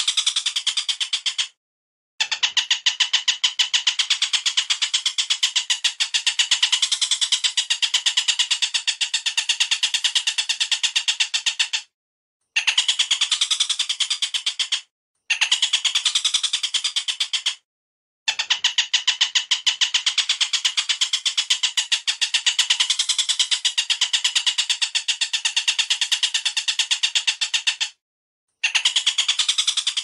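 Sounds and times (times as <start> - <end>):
bird chatter of sharp notes: 0.0 - 1.6, 2.2 - 11.9, 12.6 - 17.6, 18.3 - 28.0, 28.6 - 30.0.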